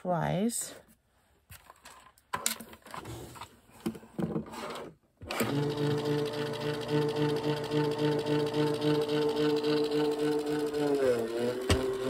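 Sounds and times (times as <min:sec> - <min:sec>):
clicks and handling sounds: 0:00.9 - 0:04.9
machine motor pulsing hum: 0:05.4 - 0:12.0.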